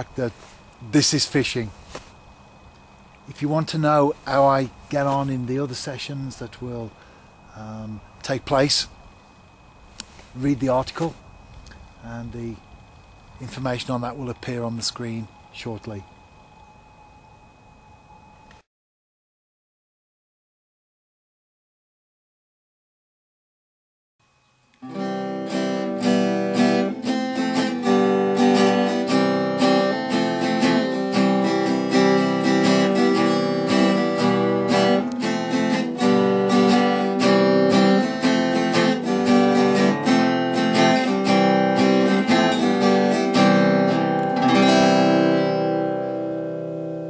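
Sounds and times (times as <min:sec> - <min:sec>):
acoustic guitar music: 0:24.8 - 0:47.0.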